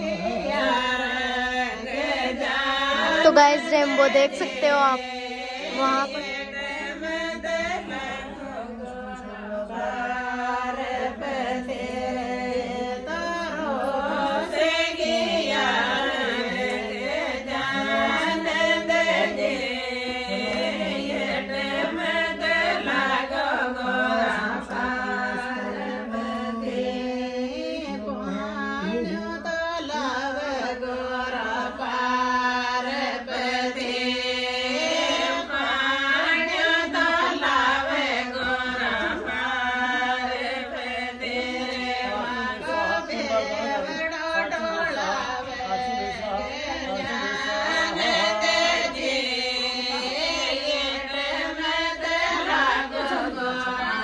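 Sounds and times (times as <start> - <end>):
chant-like singing: 0.0 - 54.0.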